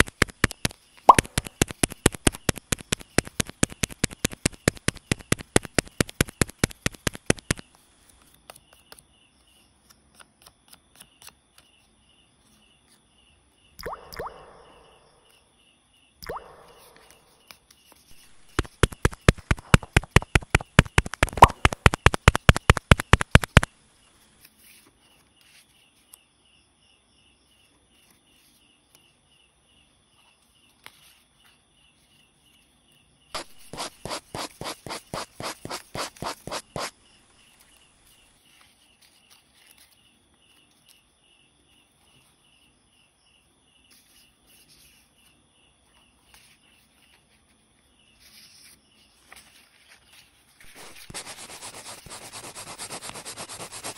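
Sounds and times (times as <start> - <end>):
paper pestle tapping: 0.0 - 7.6, 18.2 - 23.7
paper knife chopping: 0.1 - 7.7, 16.8 - 23.7, 33.4 - 36.9.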